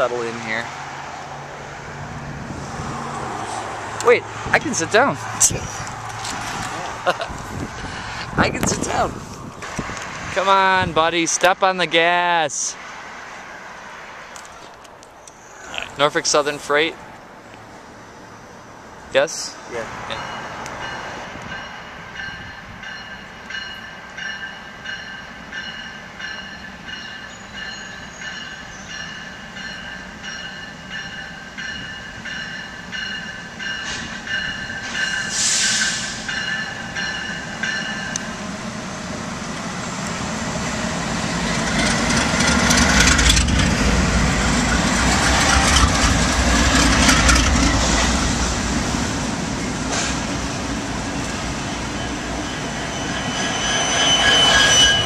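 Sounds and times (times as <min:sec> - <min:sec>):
diesel locomotives passing: 0:00.0 - 0:55.0
thin high tones: 0:51.4 - 0:55.0.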